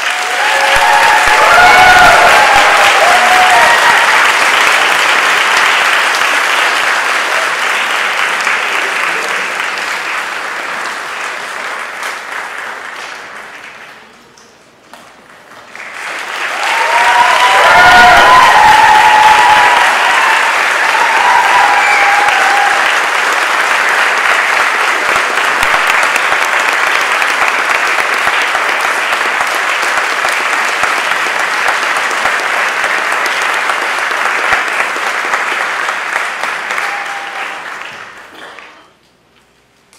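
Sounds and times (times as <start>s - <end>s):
whoops and cheers: 0.0s - 4.4s, 16.5s - 23.1s, 36.7s - 37.7s
audience applauding: 0.0s - 14.3s, 15.1s - 39.0s.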